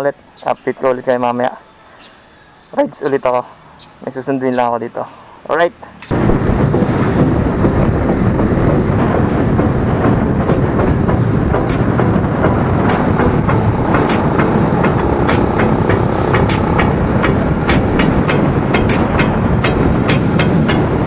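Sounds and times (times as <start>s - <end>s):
motorcycle engine running: 6.1s - 21.0s
wind rushing on microphone: 6.1s - 21.0s.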